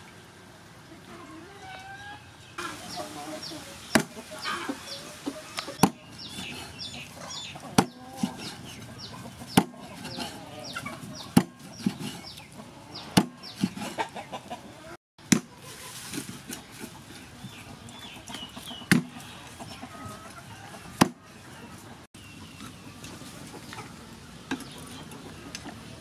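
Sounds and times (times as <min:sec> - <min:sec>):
small birds chirping: 0:01.2 - 0:14.9, 0:15.6 - 0:26.0
cleaver chopping fish on wooden board: 0:09.5 - 0:09.8.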